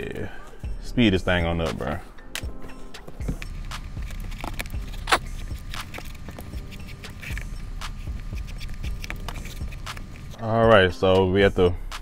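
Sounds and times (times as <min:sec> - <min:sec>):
shoelace rustling through eyelets: 0:02.8 - 0:10.4.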